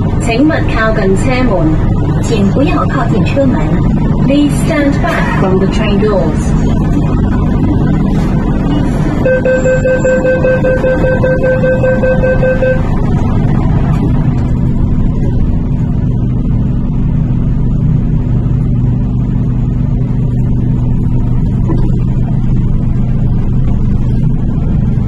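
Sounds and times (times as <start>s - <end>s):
train motors humming: 0.0s - 25.0s
door-closing warning tone: 8.6s - 13.3s.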